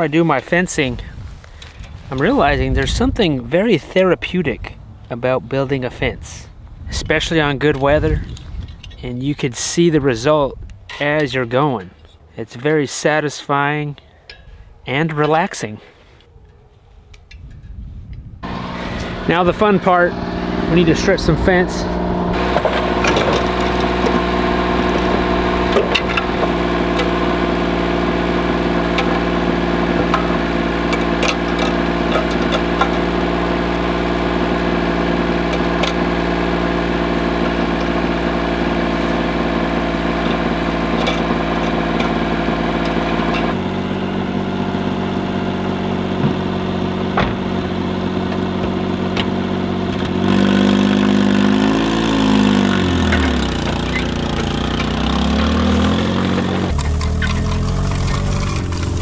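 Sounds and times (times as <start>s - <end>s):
small engine idling: 18.4s - 59.0s.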